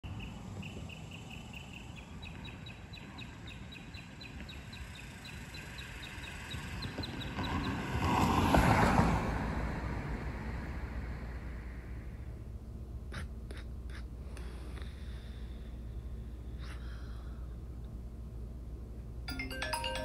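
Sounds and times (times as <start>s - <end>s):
outdoor ambience: 0.0s - 20.0s
loud rush of noise: 7.9s - 12.4s.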